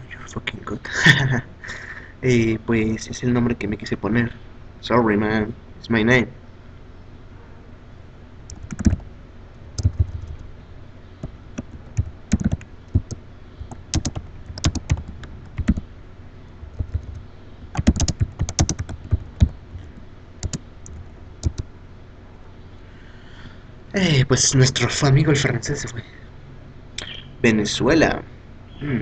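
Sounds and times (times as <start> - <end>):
typing on computer keyboard: 8.5 - 9.0, 9.8 - 10.4, 11.2 - 15.8, 16.7 - 19.5, 20.4 - 21.6.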